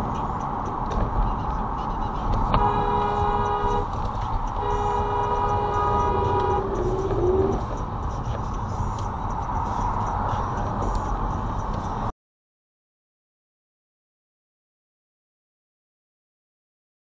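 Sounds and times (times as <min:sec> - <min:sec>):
road noise: 0:00.0 - 0:12.1
two-tone car horn: 0:01.3 - 0:07.6.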